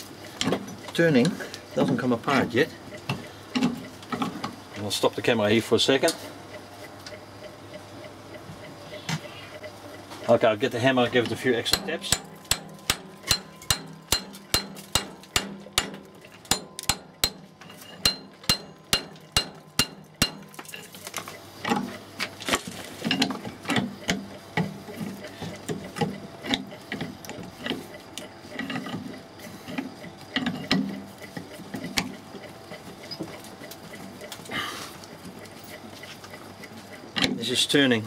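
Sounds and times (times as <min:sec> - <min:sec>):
metal knocking and scraping: 0:03.1 - 0:04.6, 0:11.2 - 0:22.0, 0:22.6 - 0:32.2
hammer tapping on metal: 0:11.2 - 0:20.6.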